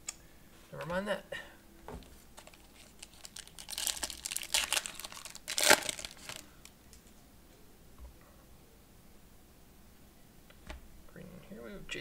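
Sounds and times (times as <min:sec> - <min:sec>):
foil pack crinkling and tearing: 0:02.4 - 0:06.6.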